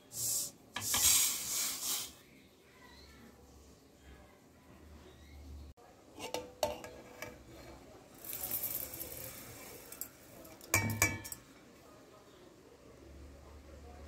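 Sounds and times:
grains pouring into steel jar: 0:08.1 - 0:10.7.

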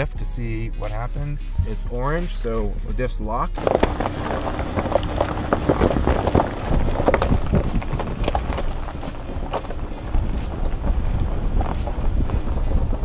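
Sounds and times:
vehicle low rumble: 0:00.0 - 0:13.0
tyres crunching on gravel: 0:03.6 - 0:13.0
wind on microphone: 0:03.6 - 0:13.0.

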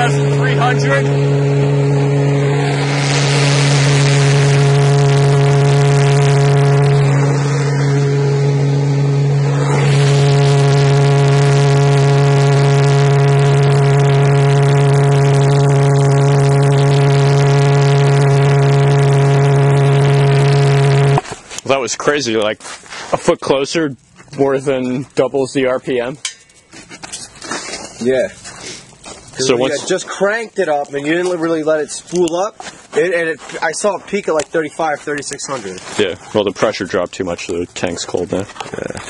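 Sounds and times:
rushing noise: 0:00.0 - 0:18.6
pulse jet engine droning: 0:00.0 - 0:22.4.

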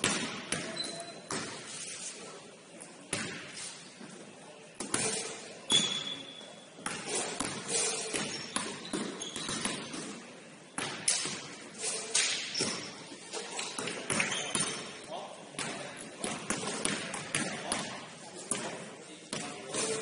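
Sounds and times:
sneakers squeaking on court: 0:00.2 - 0:02.1, 0:05.0 - 0:10.2, 0:12.4 - 0:15.0
basketball bouncing: 0:06.8 - 0:10.1.

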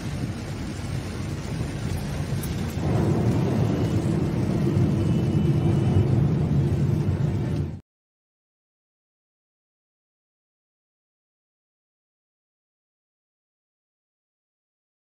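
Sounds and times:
car road noise on wet road: 0:00.0 - 0:07.8.

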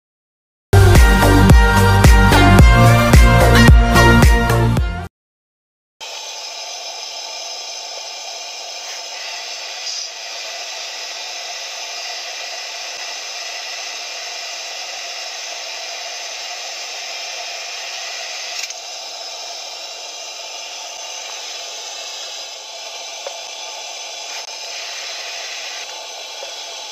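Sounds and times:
gas lantern hissing: 0:06.0 - 0:26.9.

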